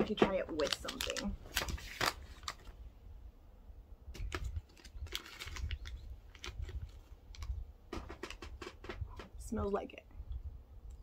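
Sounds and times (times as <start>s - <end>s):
plastic snack bag crinkling: 0.4s - 2.7s, 4.2s - 7.6s.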